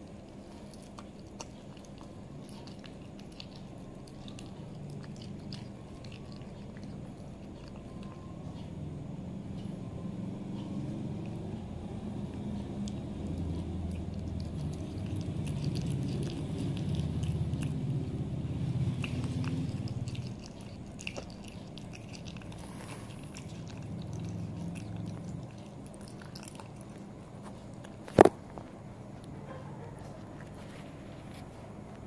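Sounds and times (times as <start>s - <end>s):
cat chewing wet mouth sounds: 0.0s - 8.5s, 9.2s - 28.3s.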